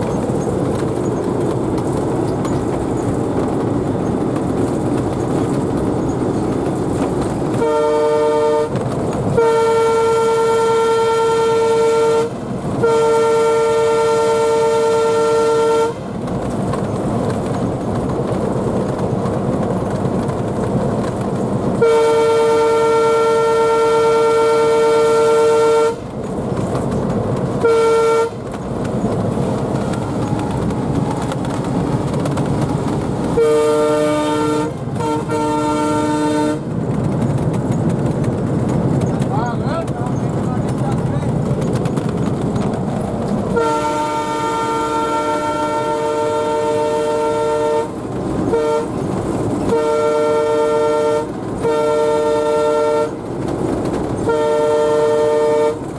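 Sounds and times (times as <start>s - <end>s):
wheels on rail: 0.0s - 55.9s
locomotive horn blasts: 7.5s - 16.2s, 21.8s - 26.1s, 27.6s - 28.5s, 33.3s - 36.7s, 43.5s - 49.0s, 49.6s - 53.2s, 54.2s - 55.9s
diesel engine running: 25.9s - 51.9s.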